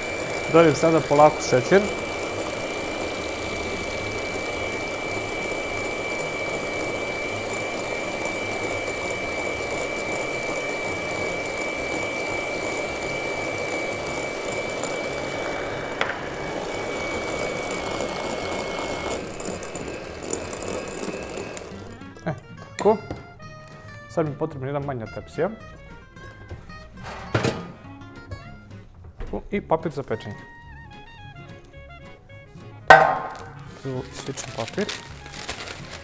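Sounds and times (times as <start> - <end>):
electric hand mixer whining: 0.0 - 23.8, 32.9 - 36.0.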